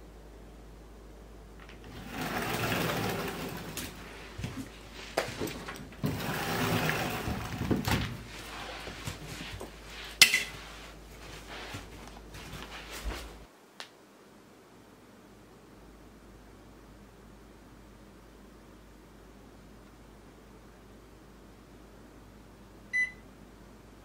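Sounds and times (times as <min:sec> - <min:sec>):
backpack and clothing rustling: 0:02.1 - 0:13.5.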